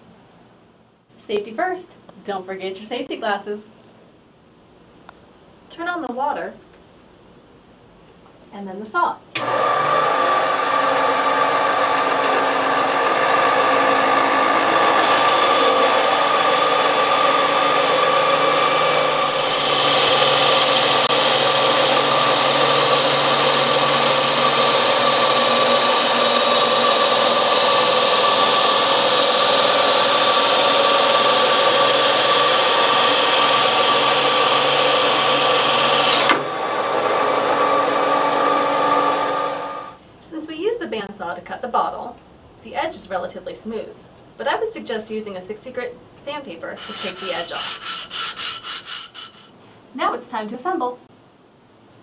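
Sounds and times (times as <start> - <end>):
band saw humming and whining: 9.4 - 40.0, 46.8 - 49.5
blade grinding through glass: 46.8 - 49.5.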